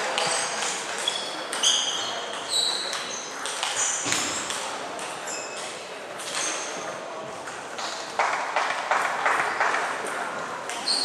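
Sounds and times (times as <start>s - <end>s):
shoes squeaking on floor: 0.0s - 4.6s, 5.2s - 7.0s, 10.7s - 11.0s.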